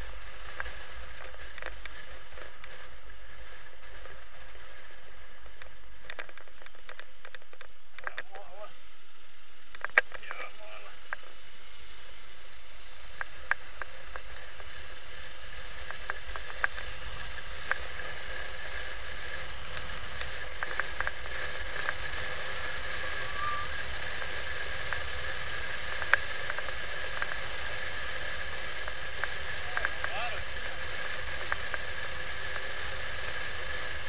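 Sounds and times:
small clicks and ticks: 0:00.0 - 0:34.0
wind and road noise hiss: 0:00.0 - 0:34.0.

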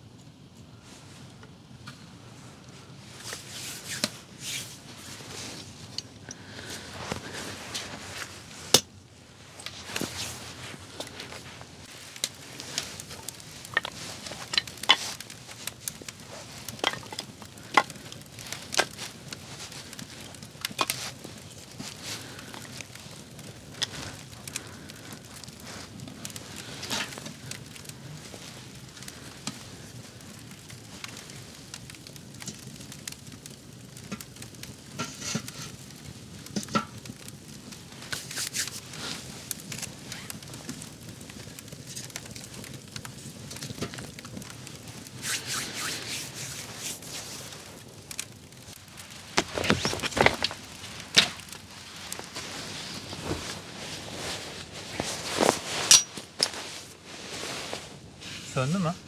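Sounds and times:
campfire crackling and popping: 0:00.0 - 0:59.0
knocks and rustles: 0:48.8 - 0:56.8.

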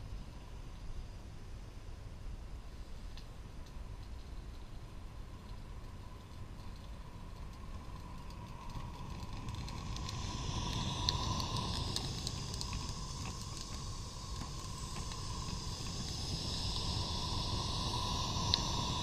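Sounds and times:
steady steam hiss: 0:00.0 - 0:19.0
wheels clicking over rail joints: 0:03.6 - 0:19.0.

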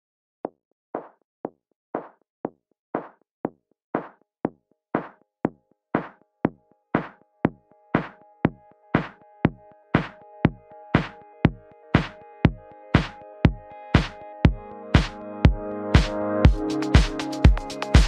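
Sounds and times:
drum machine beat: 0:04.0 - 0:04.2, 0:05.0 - 0:05.2, 0:06.0 - 0:18.0
synth chords: 0:07.7 - 0:18.0.

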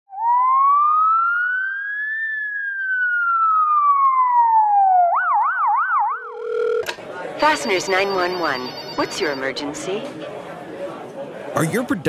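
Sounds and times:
police siren wailing: 0:00.1 - 0:06.8
police siren yelping: 0:00.1 - 0:09.6.

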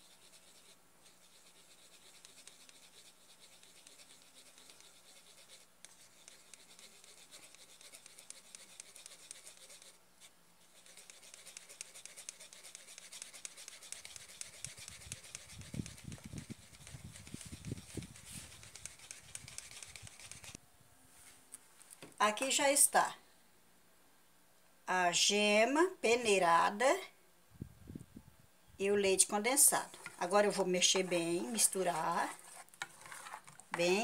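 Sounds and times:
utensil scratching through sieve: 0:00.0 - 0:20.6, 0:29.2 - 0:34.0.

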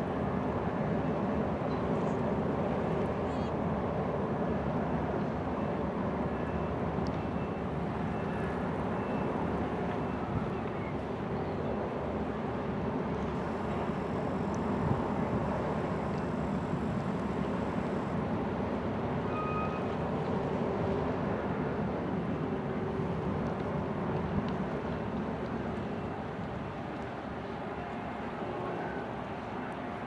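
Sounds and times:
boat engines rumbling: 0:04.8 - 0:21.2.

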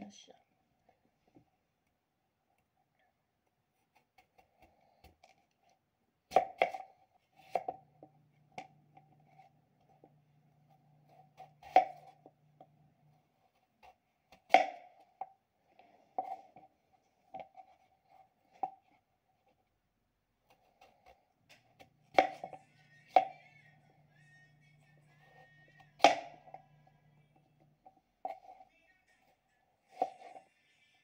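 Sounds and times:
knife slicing potato: 0:03.7 - 0:05.5, 0:06.2 - 0:12.4, 0:13.4 - 0:15.3, 0:20.4 - 0:23.8, 0:25.1 - 0:26.8, 0:27.6 - 0:30.6.

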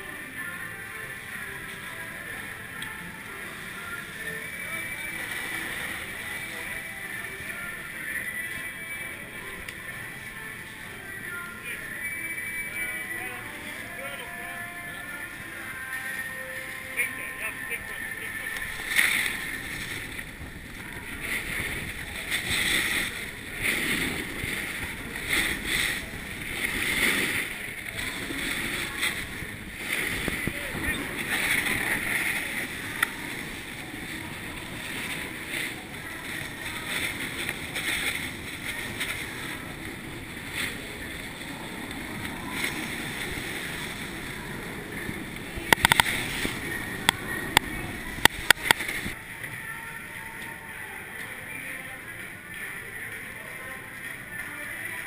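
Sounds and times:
skis scraping on snow: 0:16.8 - 0:49.2
wind on microphone: 0:18.7 - 0:49.2.

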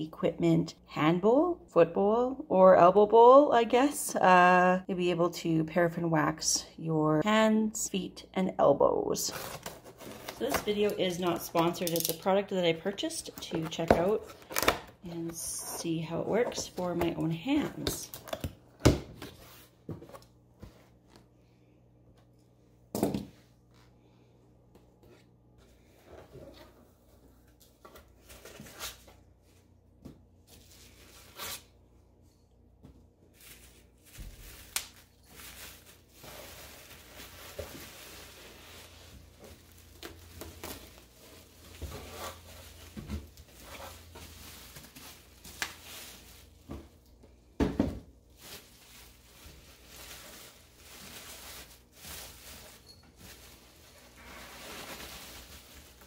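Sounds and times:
bubble wrap rustling: 0:33.2 - 0:46.9, 0:48.2 - 0:56.0.

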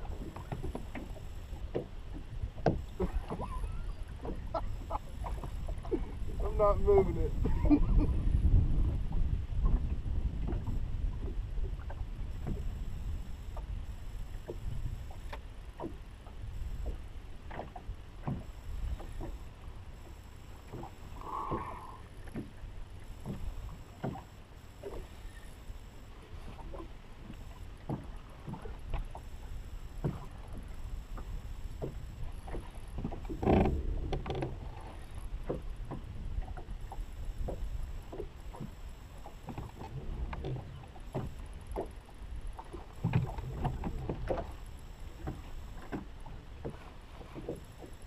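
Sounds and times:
water slapping against boat hull: 0:20.7 - 0:25.1, 0:26.5 - 0:29.3, 0:42.6 - 0:48.0.

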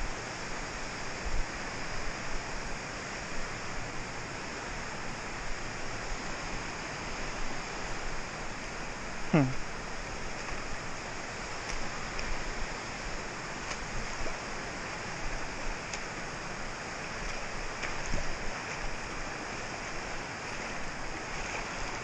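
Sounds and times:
creek water rippling over sand: 0:00.0 - 0:22.0.

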